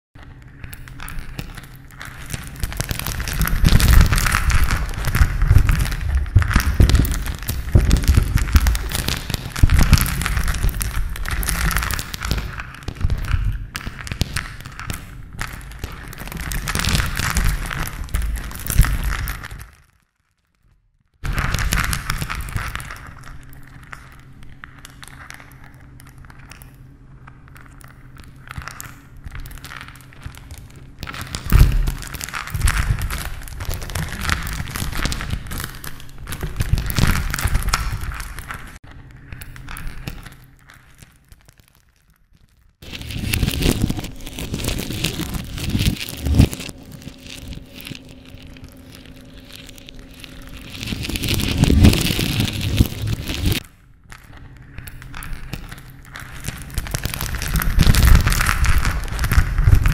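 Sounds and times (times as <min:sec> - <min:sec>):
low rumble: 0:00.2 - 0:13.8, 0:42.8 - 0:53.6
debris crumbling and clattering: 0:00.4 - 0:19.8.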